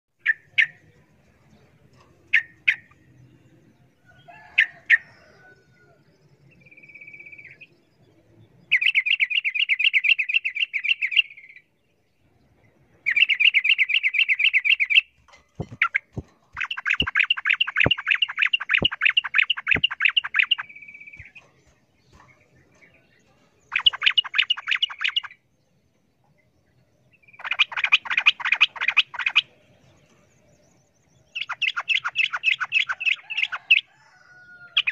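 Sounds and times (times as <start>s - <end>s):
bird rapid chattering song: 0.2s - 3.7s, 8.6s - 11.7s, 13.0s - 33.9s
sharp knocks: 15.4s - 18.0s.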